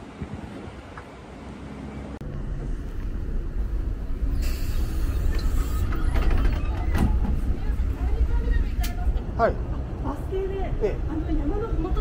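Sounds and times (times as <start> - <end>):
bus engine rumbling: 0.0 - 12.0
sharp hiss: 4.3 - 5.9.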